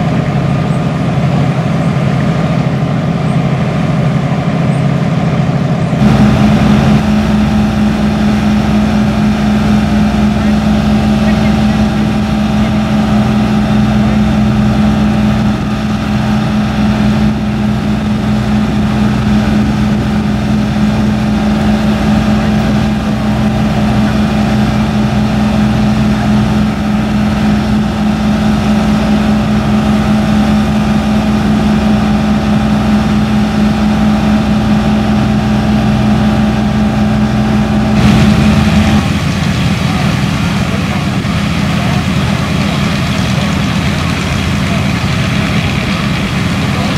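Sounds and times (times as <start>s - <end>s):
fire engine motor humming: 0.0s - 46.9s
rushing water hiss: 38.0s - 46.9s.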